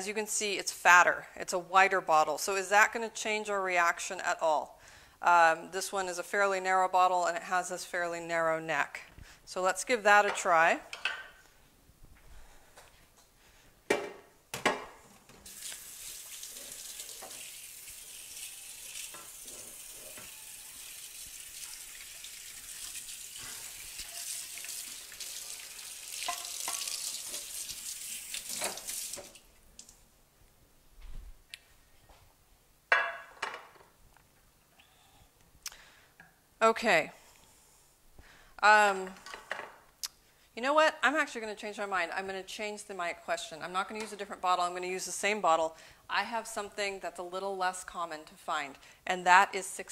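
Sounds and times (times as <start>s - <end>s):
tap running into sink: 26.2s - 27.5s
glassware clinking: 26.3s - 26.8s.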